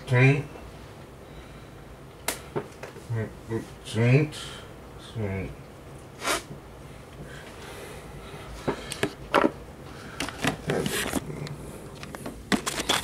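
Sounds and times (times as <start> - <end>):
objects clicking and knocking on desk: 8.7 - 9.6, 10.2 - 11.3, 12.0 - 13.0.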